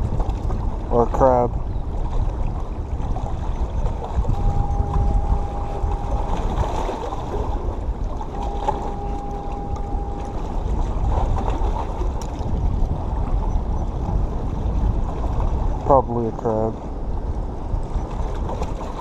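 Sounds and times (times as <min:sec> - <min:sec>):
wind buffeting microphone: 0:00.0 - 0:19.0
fishing reel whine: 0:03.5 - 0:11.6.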